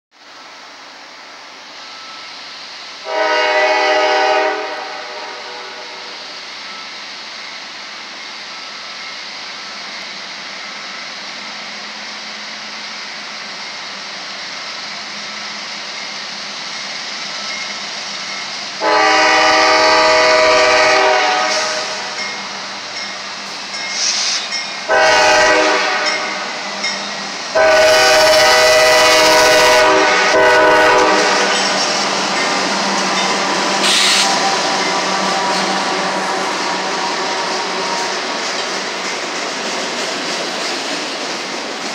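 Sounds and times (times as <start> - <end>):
steady hiss: 0.2 - 18.9, 20.7 - 24.9, 31.0 - 36.6
locomotive air horn blasts: 3.0 - 6.2, 18.8 - 22.2, 24.9 - 26.6, 27.6 - 31.6, 33.8 - 34.6.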